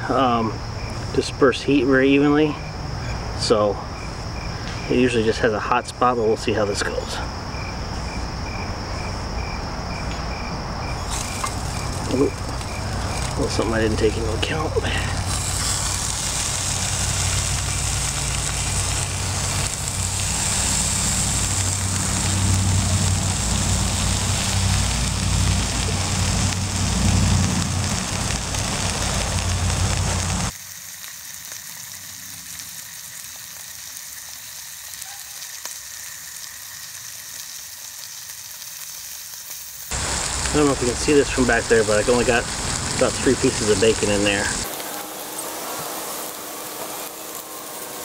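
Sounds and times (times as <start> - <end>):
bacon sizzling in a pan: 11.0 - 48.0.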